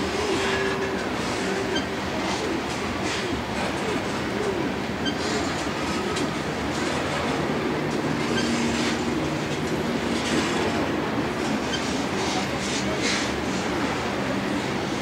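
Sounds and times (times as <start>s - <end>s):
steel wheels rumbling on rail: 0.0s - 15.0s
clicking at rail joints: 3.6s - 10.9s.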